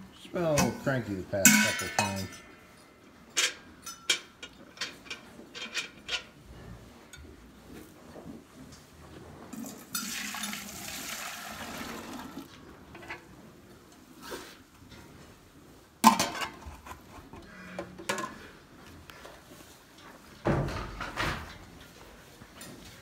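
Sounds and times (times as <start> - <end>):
metal pails clinking: 0.4 - 2.7, 9.5 - 13.2, 16.0 - 16.9
milk pouring into metal can: 9.6 - 12.5.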